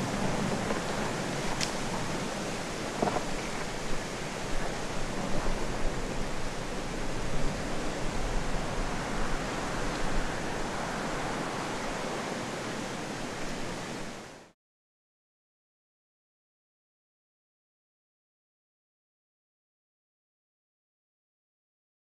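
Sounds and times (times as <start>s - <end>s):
rushing noise with low rumble: 0.0s - 14.3s.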